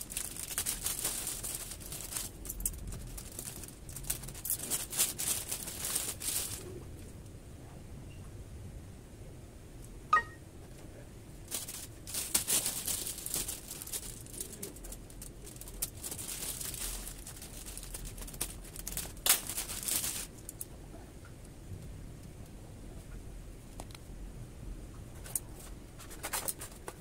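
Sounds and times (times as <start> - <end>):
plastic packaging crinkling: 0.0 - 6.8, 11.5 - 20.7.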